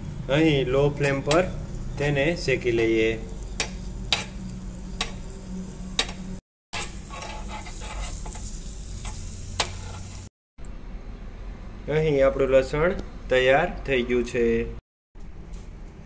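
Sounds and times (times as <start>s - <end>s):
steel spoon scraping a pan: 1.0s - 6.2s, 6.8s - 10.3s
garlic sizzling in butter: 1.0s - 10.3s.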